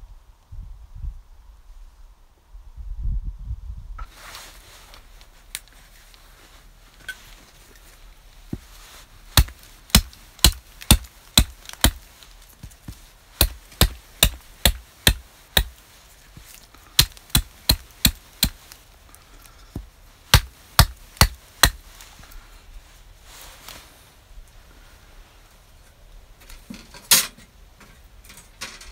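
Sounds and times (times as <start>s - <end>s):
hatchet striking wood: 9.4s - 12.0s, 13.4s - 15.8s, 17.0s - 18.7s, 20.3s - 21.8s.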